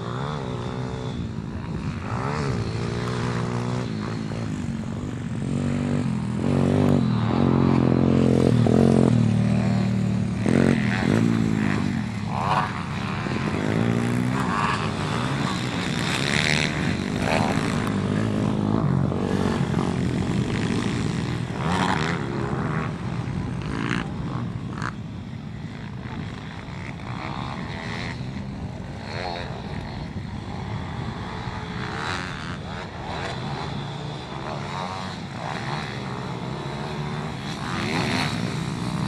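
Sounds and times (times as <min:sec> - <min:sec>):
dirt bike engines revving: 0:00.0 - 0:39.0.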